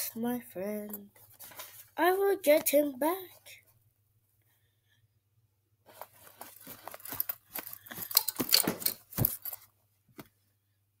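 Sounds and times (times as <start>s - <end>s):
cloth rustling: 1.1s - 2.0s, 5.8s - 10.4s.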